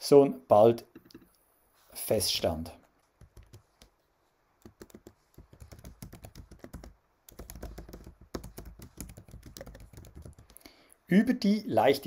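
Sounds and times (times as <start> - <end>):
keyboard typing clicks: 4.6 - 10.6.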